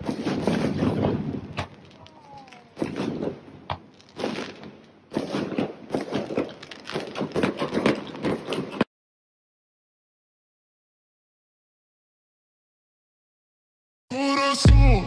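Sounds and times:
firework bang: 0:00.0 - 0:08.9
fireworks crackling and popping: 0:00.0 - 0:08.9.

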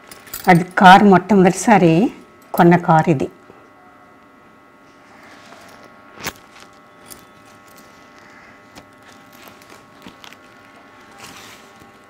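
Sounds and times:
faint steady hum: 0:00.0 - 0:12.0
plastic sleeves rustling: 0:05.4 - 0:12.0.

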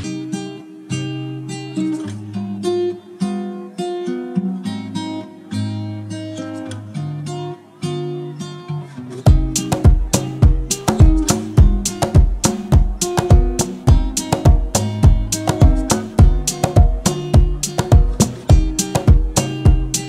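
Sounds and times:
acoustic guitar melody: 0:00.0 - 0:20.0
heavy drum beats with bass: 0:09.3 - 0:20.0.

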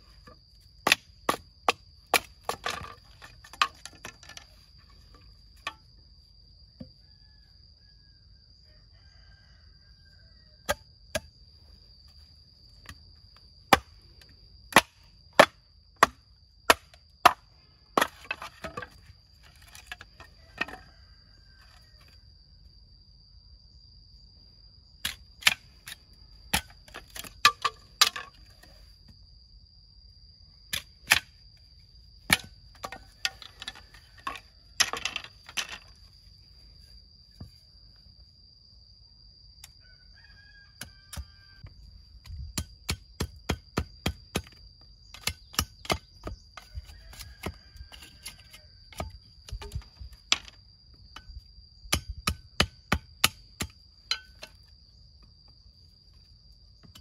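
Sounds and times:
machete splitting bamboo: 0:14.7 - 0:17.4.

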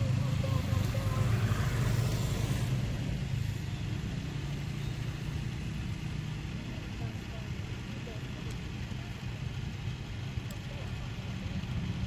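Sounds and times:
vehicle engine humming: 0:00.0 - 0:12.0
hiss: 0:00.9 - 0:03.6.

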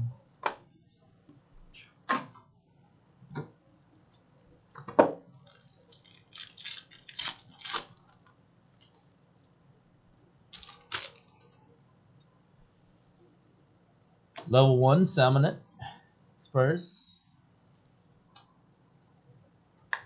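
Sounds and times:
foil wrapper crinkling and tearing: 0:05.4 - 0:08.2, 0:10.5 - 0:11.4.

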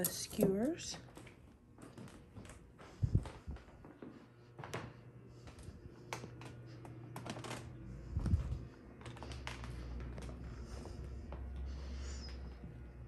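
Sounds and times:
low steady hum: 0:00.0 - 0:13.0
wooden floorboards creaking underfoot: 0:01.0 - 0:10.9.

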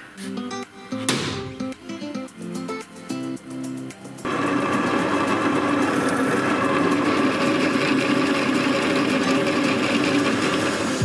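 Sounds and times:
drill press drilling steel: 0:04.3 - 0:11.0.

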